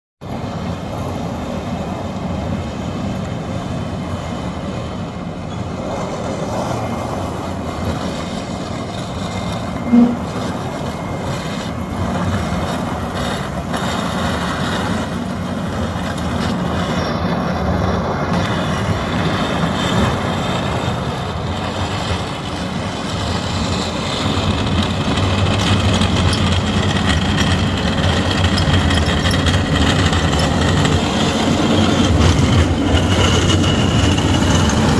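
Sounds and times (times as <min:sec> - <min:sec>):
diesel engine under load: 0:00.2 - 0:34.9
steel blade scraping ice: 0:07.8 - 0:15.2, 0:23.2 - 0:34.9
short pitched toot: 0:09.6 - 0:11.0.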